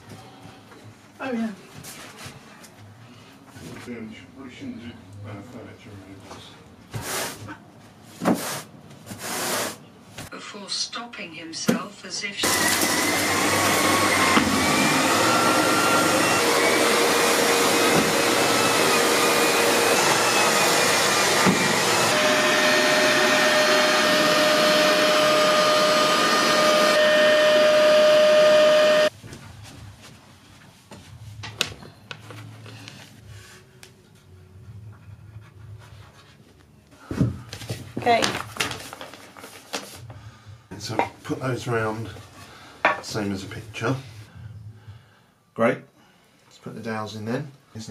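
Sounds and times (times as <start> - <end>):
vacuum cleaner running on carpet: 12.4 - 29.2.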